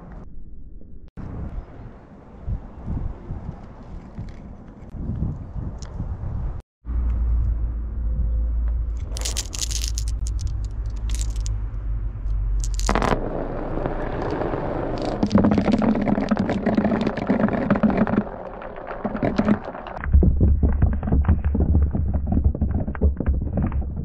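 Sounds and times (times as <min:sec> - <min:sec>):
glass marbles clicking: 0:09.1 - 0:11.5, 0:12.6 - 0:13.2, 0:14.2 - 0:20.0
marbles rolling down track: 0:09.2 - 0:11.5, 0:12.6 - 0:20.0.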